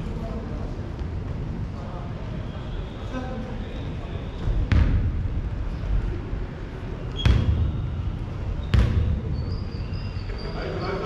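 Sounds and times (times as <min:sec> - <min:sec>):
large hall noise: 0:00.0 - 0:11.0
basketball bouncing on gym floor: 0:04.4 - 0:05.4, 0:07.1 - 0:09.6
shoe squeaks: 0:07.1 - 0:11.0.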